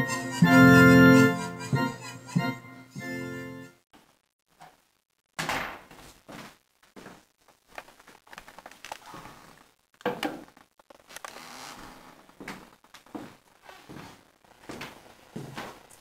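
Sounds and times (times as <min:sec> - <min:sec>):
shuffling footsteps: 0:05.9 - 0:09.7, 0:11.7 - 0:16.0.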